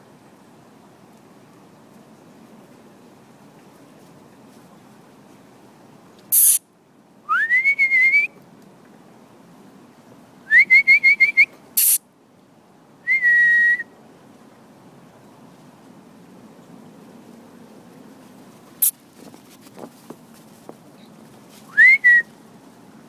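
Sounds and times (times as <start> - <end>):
sharp bursts of noise: 6.3 - 6.6, 11.8 - 12.0
person whistling: 7.3 - 8.3, 13.1 - 13.9, 21.7 - 22.3.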